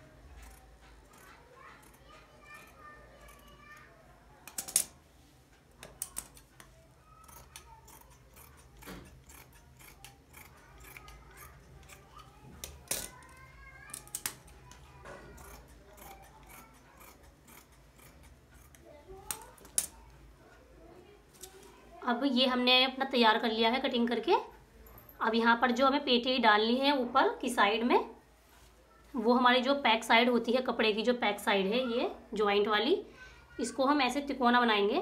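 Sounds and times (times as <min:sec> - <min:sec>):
scissors snipping cloth: 0:00.3 - 0:04.9, 0:05.8 - 0:19.9.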